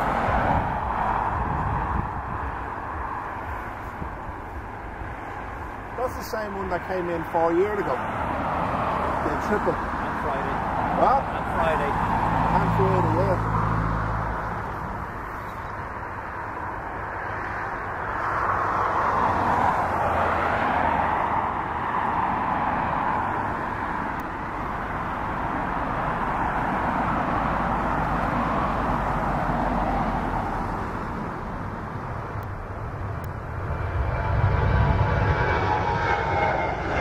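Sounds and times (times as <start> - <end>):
jet engines idling: 1.3 - 8.1, 31.0 - 37.0.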